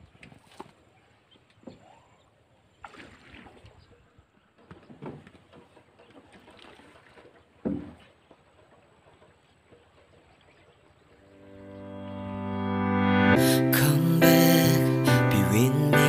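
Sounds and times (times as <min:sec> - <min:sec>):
water splashing against raft: 0:00.0 - 0:11.4
knocks on bamboo deck: 0:04.6 - 0:05.7, 0:07.6 - 0:08.1.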